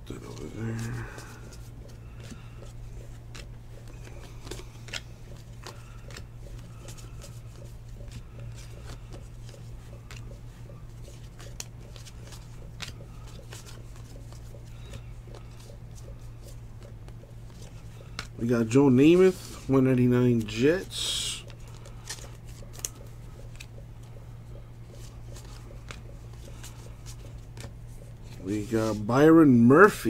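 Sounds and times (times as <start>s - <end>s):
trading cards flipping: 0.2s - 29.3s.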